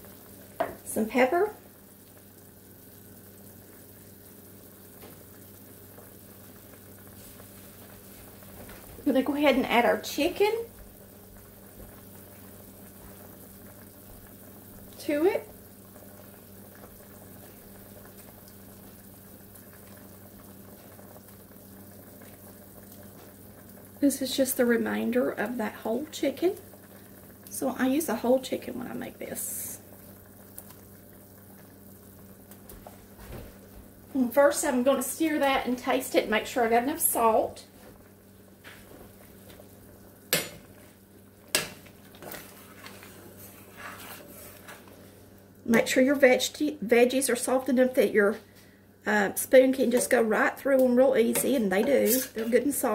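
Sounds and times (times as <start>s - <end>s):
stew bubbling in a pot: 0.0s - 52.9s
metal spoon clinking and scraping pot: 51.9s - 52.5s.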